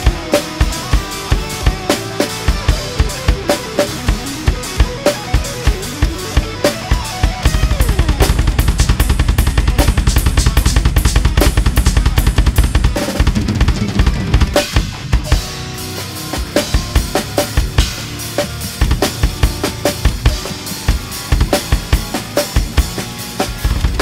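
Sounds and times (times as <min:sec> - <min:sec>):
rock drum kit played hard: 0:00.0 - 0:24.0.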